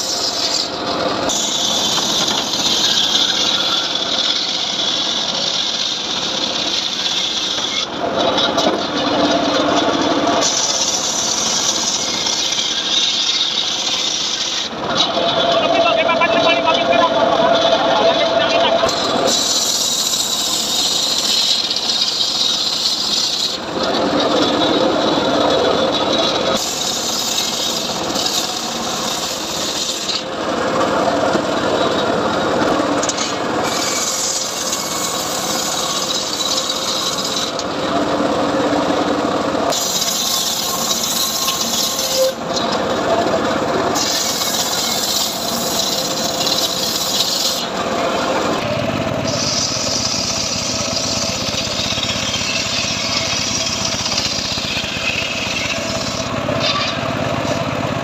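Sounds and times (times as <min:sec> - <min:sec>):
saw cutting through wood: 0:00.0 - 0:58.0.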